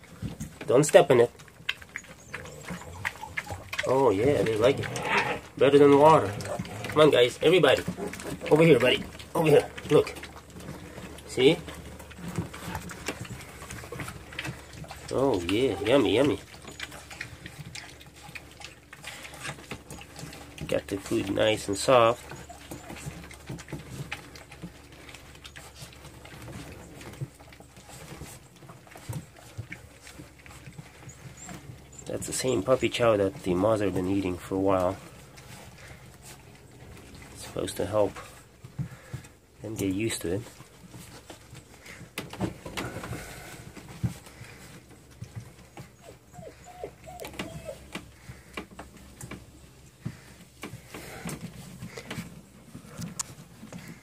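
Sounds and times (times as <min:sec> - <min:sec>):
puppies lapping and chewing food: 0:00.0 - 0:54.0
puppy whimpers: 0:01.9 - 0:05.4, 0:15.6 - 0:19.5, 0:22.2 - 0:23.4, 0:45.6 - 0:48.5.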